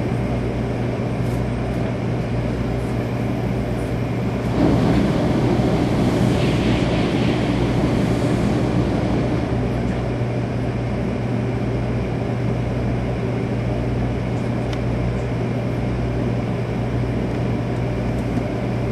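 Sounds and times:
low hum of cabin equipment: 0.0s - 18.9s
bullet train rushing past: 2.2s - 12.0s.

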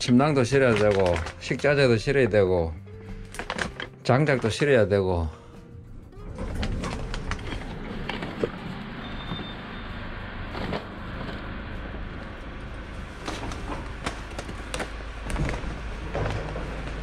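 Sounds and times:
cart wheels rumbling on tiles: 0.0s - 1.8s, 6.2s - 17.0s
cart clicking and knocking: 6.3s - 9.6s, 13.1s - 17.0s.

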